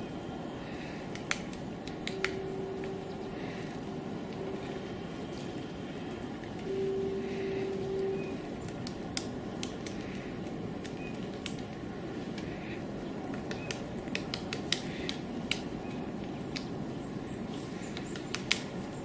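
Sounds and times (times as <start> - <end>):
low background noise: 0.0 - 19.0
woodpecker tapping on bark: 13.3 - 15.7, 17.8 - 18.7.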